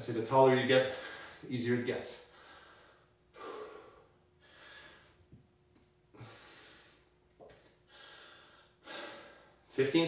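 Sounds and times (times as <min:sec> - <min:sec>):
man breathing hard: 0:00.8 - 0:01.5, 0:02.2 - 0:05.4, 0:06.1 - 0:09.7.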